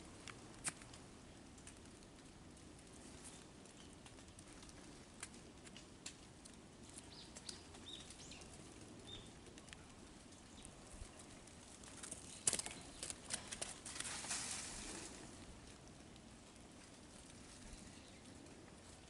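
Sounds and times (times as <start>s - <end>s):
footsteps through leaves and snow: 13.8s - 15.3s.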